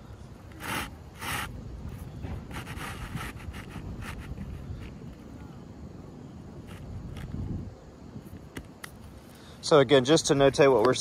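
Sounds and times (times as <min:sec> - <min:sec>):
shingle scraping: 0:00.5 - 0:05.3.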